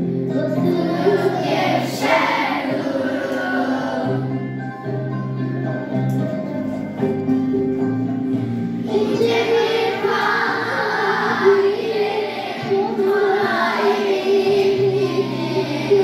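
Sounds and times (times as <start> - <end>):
children singing together: 0.0 - 4.7, 8.8 - 16.0
instrumental accompaniment: 0.0 - 16.0.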